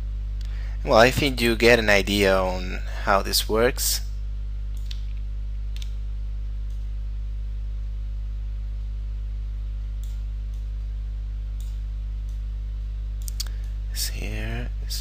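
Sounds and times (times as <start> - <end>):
low electrical hum: 0.0 - 15.0
computer mouse clicks: 10.0 - 10.7.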